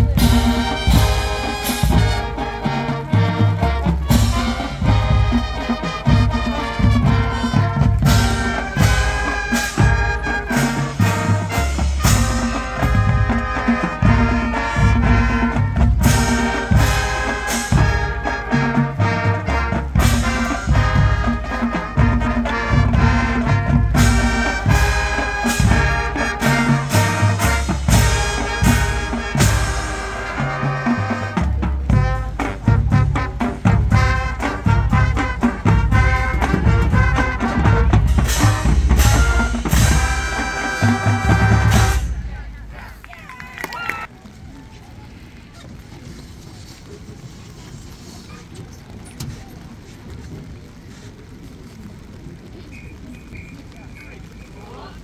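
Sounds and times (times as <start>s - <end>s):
sharp percussion hits: 0.0s - 42.5s
drumline beat: 0.0s - 43.6s
marching band brass: 0.0s - 55.0s.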